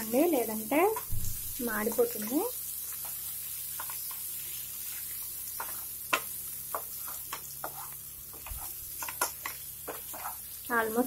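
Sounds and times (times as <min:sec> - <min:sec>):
chicken sizzling in frying pan: 0:00.0 - 0:11.0
spatula scraping pan: 0:02.9 - 0:10.5.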